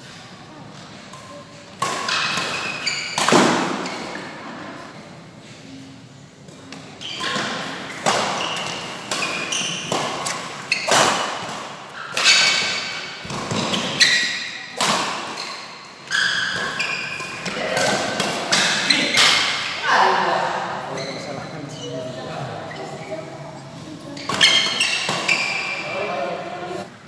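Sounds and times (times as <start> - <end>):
shoes squeaking on court: 1.3 - 4.3, 6.7 - 14.6, 15.3 - 19.3, 20.9 - 26.8.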